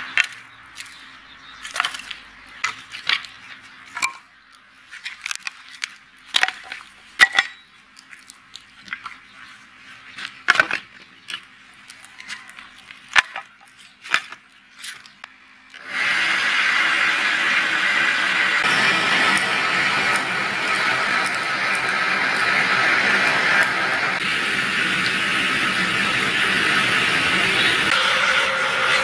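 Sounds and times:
wood fire crackling and popping: 11.3 - 28.0
air blown through pipe: 15.8 - 29.0.

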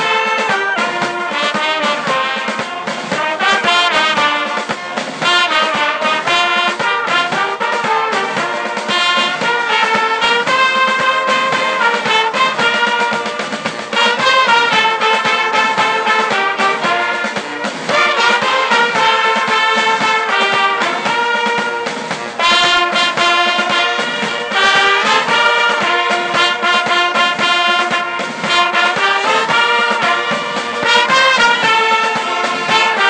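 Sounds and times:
brass band playing held chords: 0.0 - 33.0.

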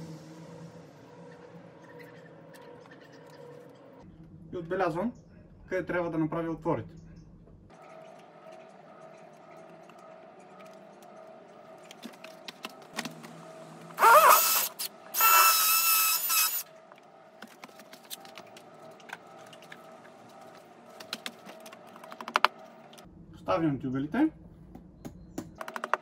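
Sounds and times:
power drill drilling into wall: 14.0 - 16.6.

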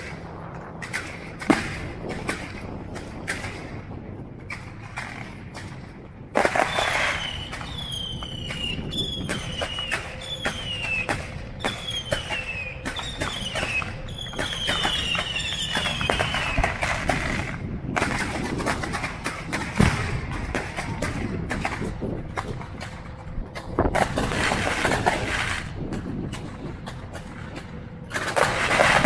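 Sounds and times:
fireworks bangs and crackling pops: 0.0 - 29.0
falling firework whistles: 6.4 - 18.3.

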